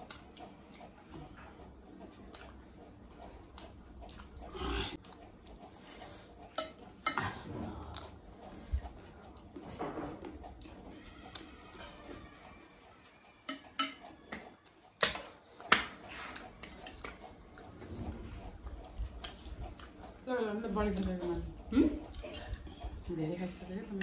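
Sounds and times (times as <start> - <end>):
spoons clicking on glass plates: 13.4 - 14.1.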